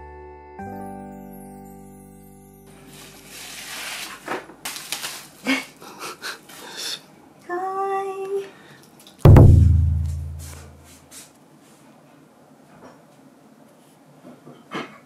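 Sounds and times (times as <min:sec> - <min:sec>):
cardboard and plastic rustling: 0:02.8 - 0:05.8.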